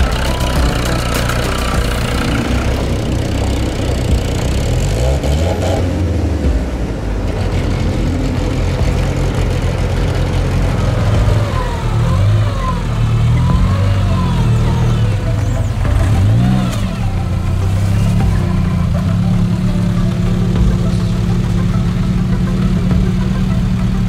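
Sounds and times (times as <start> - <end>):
off-road engine revving: 0.0 - 24.0.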